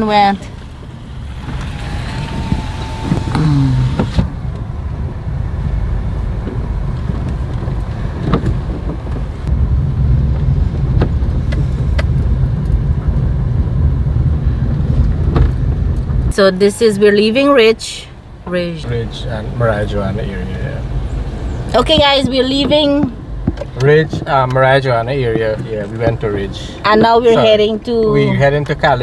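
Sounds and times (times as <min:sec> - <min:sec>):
car engine and tyres rumbling: 0:00.0 - 0:29.0
short pitched sound: 0:01.2 - 0:04.4.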